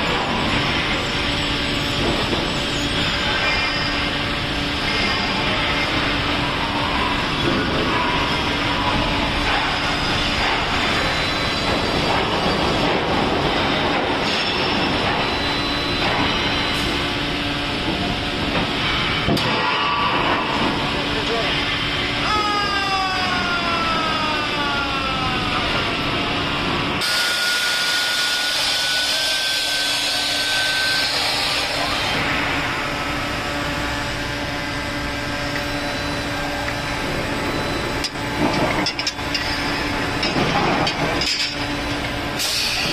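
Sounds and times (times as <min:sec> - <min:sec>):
steady machine hum: 0:00.0 - 0:42.9
machine whines gliding down: 0:22.0 - 0:32.1.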